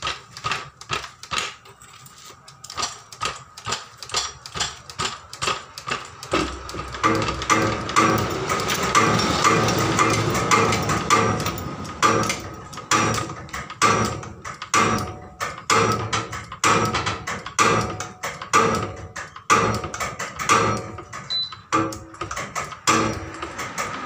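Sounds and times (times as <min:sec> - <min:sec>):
floor jack metallic clanking: 0:06.3 - 0:24.0.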